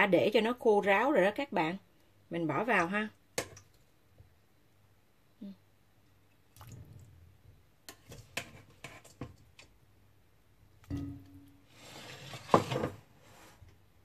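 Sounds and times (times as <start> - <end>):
wet squishes and splashes: 6.4 - 7.1.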